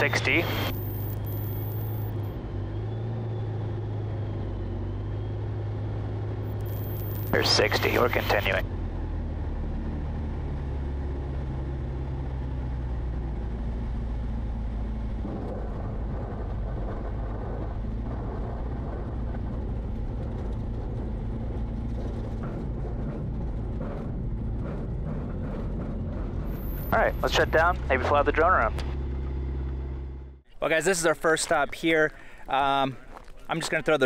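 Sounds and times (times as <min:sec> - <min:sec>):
propeller engine running: 0:00.0 - 0:34.0
wheels rolling over rough ground: 0:30.6 - 0:34.0.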